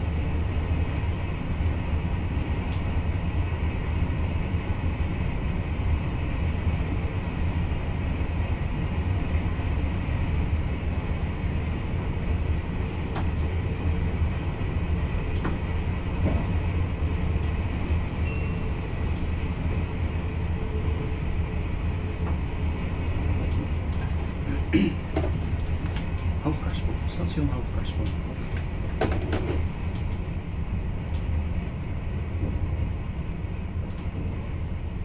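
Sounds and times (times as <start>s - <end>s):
train rumble and hum: 0.0s - 35.0s
brief high tone: 18.2s - 18.7s.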